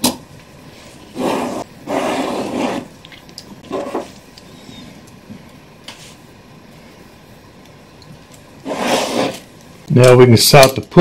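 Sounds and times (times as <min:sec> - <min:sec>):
gloved hands rustling and scraping: 0:08.2 - 0:09.8.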